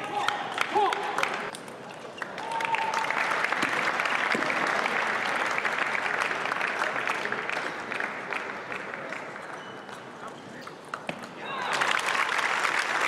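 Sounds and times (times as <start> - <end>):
spectators applauding: 2.2 - 9.6, 11.4 - 13.0.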